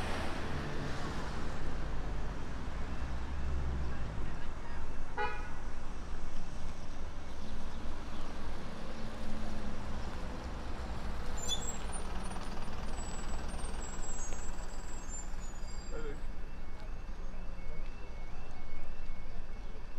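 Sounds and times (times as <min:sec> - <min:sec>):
traffic rumble: 0:00.0 - 0:19.9
faint high squeaks: 0:11.4 - 0:11.9.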